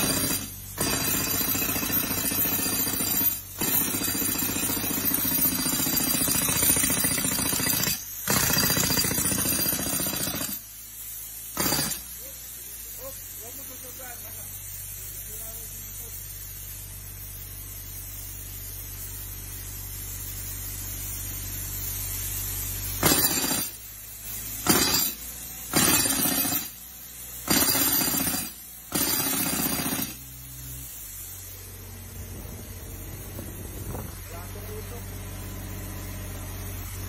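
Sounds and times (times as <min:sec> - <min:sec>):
jackhammer bursts: 0:00.0 - 0:10.6, 0:11.5 - 0:12.2, 0:23.0 - 0:23.8, 0:24.6 - 0:26.8, 0:27.4 - 0:30.4
diesel compressor engine running: 0:24.6 - 0:37.0.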